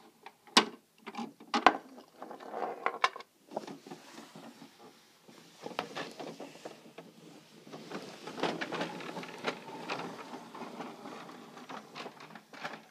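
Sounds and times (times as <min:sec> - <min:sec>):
toy truck rattling on wooden floor: 0:05.6 - 0:12.9.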